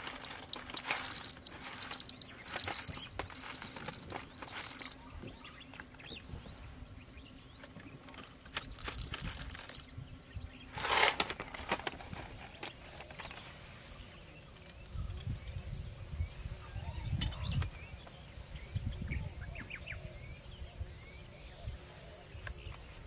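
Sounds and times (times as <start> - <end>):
clatter: 0.0 - 5.0, 8.2 - 9.8
coffee gear clicking and knocking: 0.0 - 5.1, 8.1 - 9.9
crickets chirring: 0.0 - 23.0.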